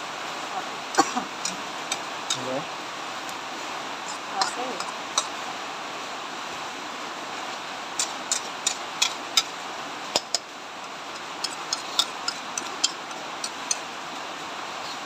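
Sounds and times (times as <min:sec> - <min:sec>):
steady hiss: 0:00.0 - 0:15.0
metal spatula scraping a wok: 0:11.1 - 0:13.8.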